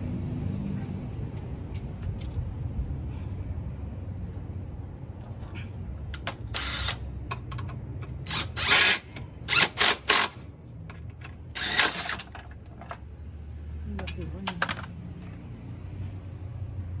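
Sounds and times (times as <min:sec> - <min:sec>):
cordless drill whirring: 0:06.5 - 0:07.0, 0:08.3 - 0:10.4, 0:11.6 - 0:12.2.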